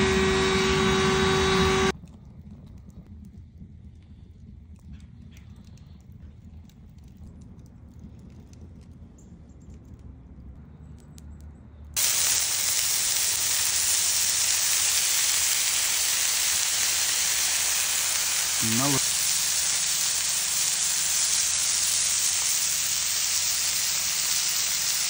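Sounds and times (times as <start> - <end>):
faint low rumble: 0.0 - 12.0
burger patties sizzling on griddle: 12.0 - 25.0.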